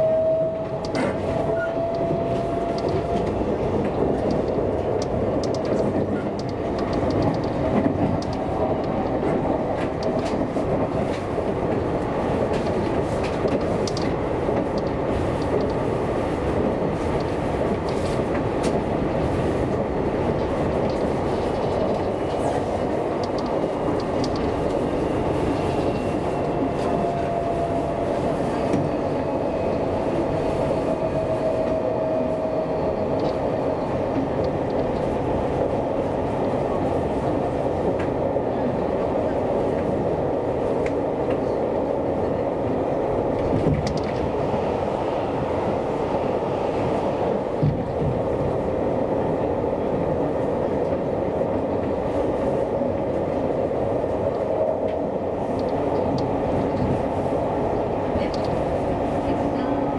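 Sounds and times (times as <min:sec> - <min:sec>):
train wheels rumbling on rail: 0:00.0 - 0:59.9
train whine: 0:00.0 - 0:59.9
clicks over track: 0:02.7 - 0:09.2.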